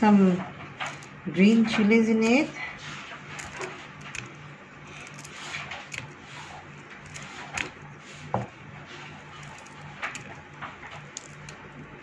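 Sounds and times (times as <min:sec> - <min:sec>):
scissors snipping: 0:03.3 - 0:07.8, 0:09.3 - 0:11.9.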